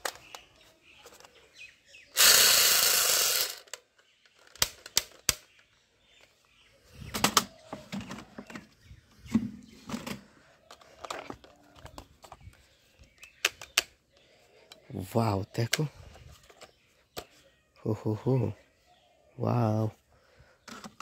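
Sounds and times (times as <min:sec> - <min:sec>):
plastic toy guns clattering: 0:00.0 - 0:00.5, 0:02.2 - 0:05.6.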